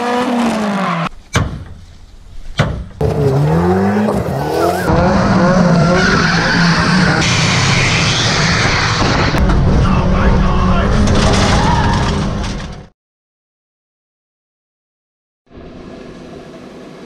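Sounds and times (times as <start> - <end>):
car engines revving: 0.0 - 1.1, 3.0 - 11.9
tyres squealing: 5.6 - 9.0.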